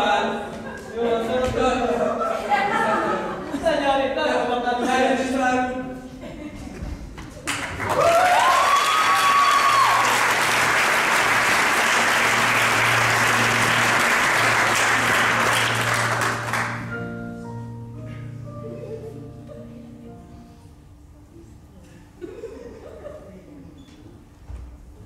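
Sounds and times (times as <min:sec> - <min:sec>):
audience applauding: 0:07.4 - 0:17.0
audience cheering: 0:07.8 - 0:16.6
grand piano playing: 0:10.4 - 0:21.7.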